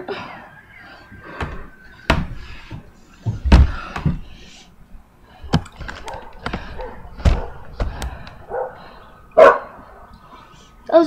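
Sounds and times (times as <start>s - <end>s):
thuds and knocks: 1.3s - 4.3s, 5.4s - 8.3s.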